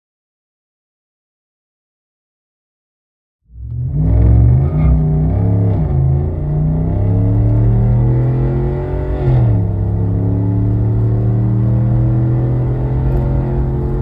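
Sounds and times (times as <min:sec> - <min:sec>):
truck exhaust accelerating: 0:03.5 - 0:14.0.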